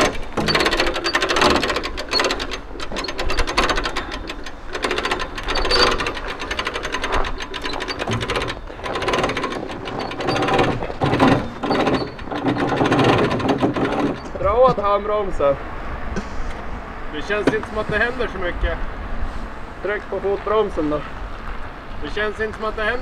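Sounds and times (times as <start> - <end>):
winch ratcheting clatter: 0.0 - 14.7.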